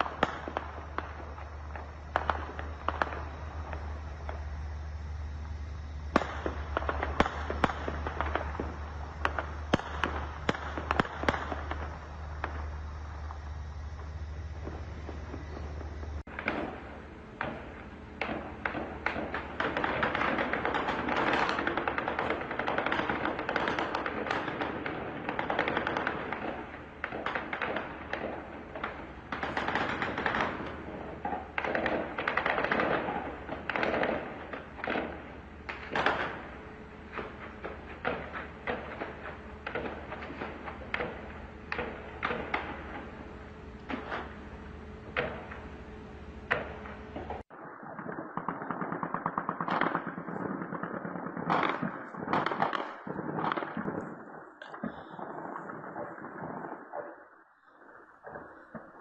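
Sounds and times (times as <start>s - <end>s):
gunshots and short bursts: 5.9s - 57.2s
automatic gunfire: 18.2s - 43.3s.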